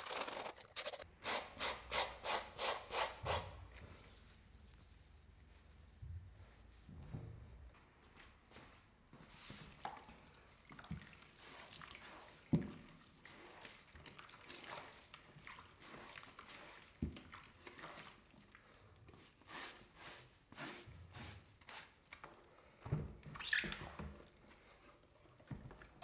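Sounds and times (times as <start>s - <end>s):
brush scrubbing a wet shoe: 10.5s - 22.0s.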